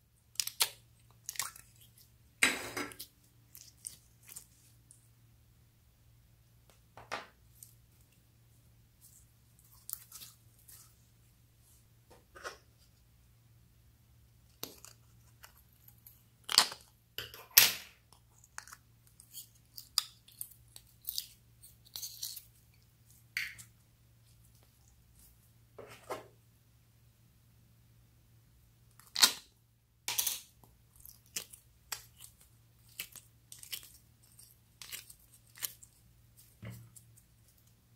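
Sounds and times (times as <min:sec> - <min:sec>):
sticky slime crackles: 0:00.2 - 0:02.3, 0:02.9 - 0:05.0, 0:09.0 - 0:11.0, 0:30.1 - 0:37.9.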